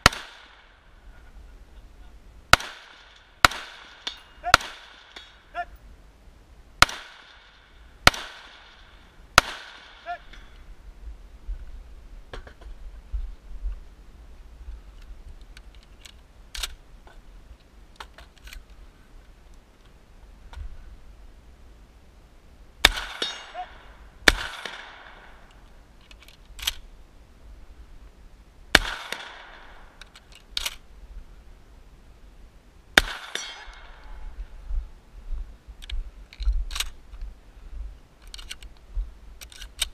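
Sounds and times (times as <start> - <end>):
shotgun shots echoing: 0.0 - 0.8, 2.5 - 5.6, 6.8 - 10.4, 22.8 - 25.5, 28.7 - 30.0, 33.0 - 34.2
gun being handled and loaded: 15.0 - 17.2, 17.9 - 18.8, 25.4 - 26.9, 30.0 - 30.8, 35.8 - 37.3, 38.2 - 39.9.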